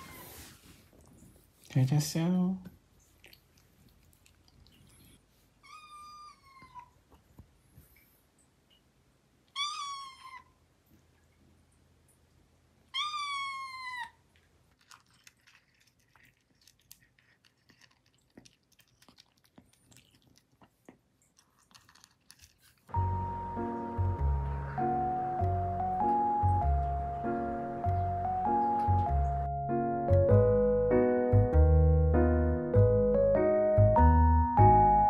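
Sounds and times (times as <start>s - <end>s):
kitten crunching food: 3.0s - 5.2s, 13.8s - 23.1s
kitten meowing: 9.5s - 10.5s, 12.9s - 14.2s.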